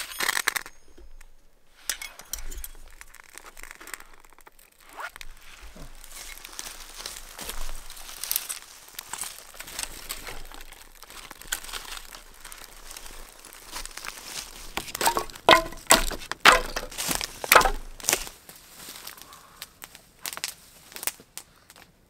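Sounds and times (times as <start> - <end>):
sharp cracks and snaps of fire: 1.9 - 18.4, 19.0 - 21.9
campfire crackling: 2.7 - 16.6.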